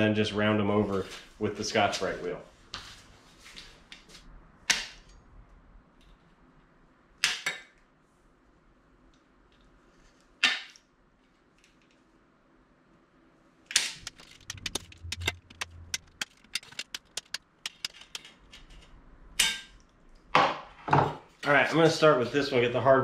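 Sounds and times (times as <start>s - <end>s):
tin snips cutting metal: 13.8s - 18.3s.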